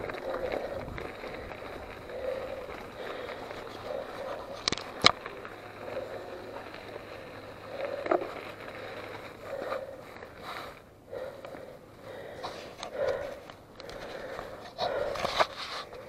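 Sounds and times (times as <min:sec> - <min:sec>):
bike tyres crunching on gravel: 0:00.0 - 0:16.0.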